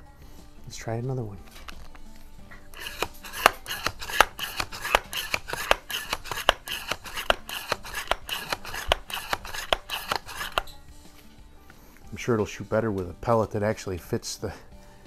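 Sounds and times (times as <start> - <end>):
air rifle pump strokes clicking: 2.7 - 10.7.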